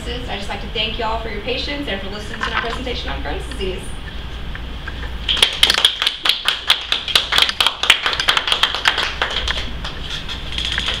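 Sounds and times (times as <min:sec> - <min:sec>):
small audience applauding: 0:05.3 - 0:11.0.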